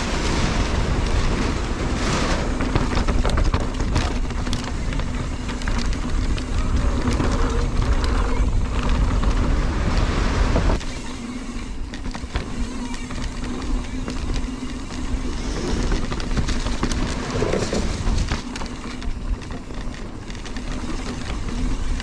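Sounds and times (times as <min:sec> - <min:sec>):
mountain bike rumbling and rattling: 0:00.0 - 0:22.0
wind buffeting microphone: 0:00.0 - 0:22.0.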